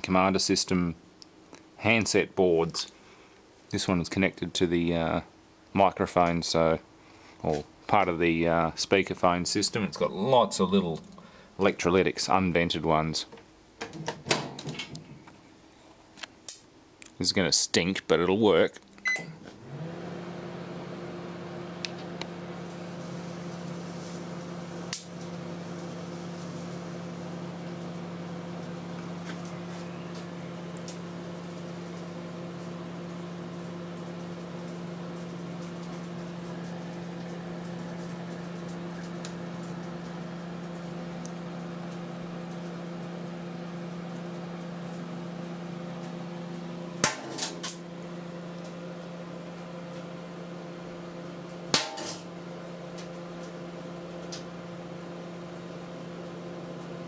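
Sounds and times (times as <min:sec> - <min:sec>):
microwave oven humming: 0:07.5 - 0:13.1, 0:18.1 - 0:57.0
sharp pops of capacitors bursting: 0:47.0 - 0:47.4.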